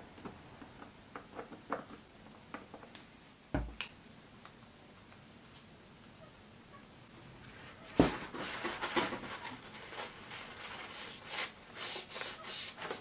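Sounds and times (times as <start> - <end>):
knock on workbench: 3.6 - 3.8
paper towel crinkling: 7.9 - 13.0.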